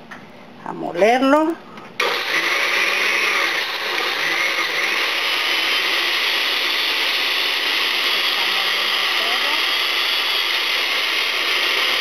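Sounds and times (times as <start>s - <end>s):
blender grinding: 2.0s - 12.0s.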